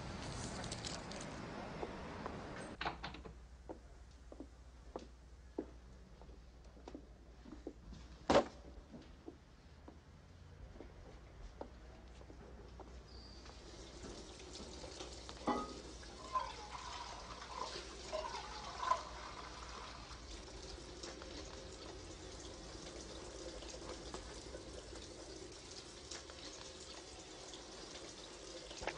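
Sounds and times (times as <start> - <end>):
tap water running into metal pot: 13.5 - 28.9
metal pot knocks and clinks: 15.4 - 16.7.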